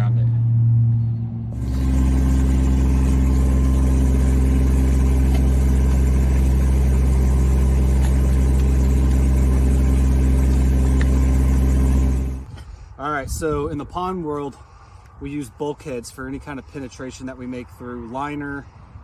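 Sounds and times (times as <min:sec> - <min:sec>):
digging machine engine idling: 0:01.5 - 0:12.6.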